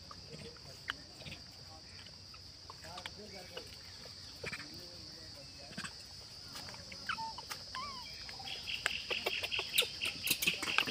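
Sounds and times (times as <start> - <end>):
clicks and rustles: 6.5 - 10.9
short chirping calls: 6.8 - 10.9.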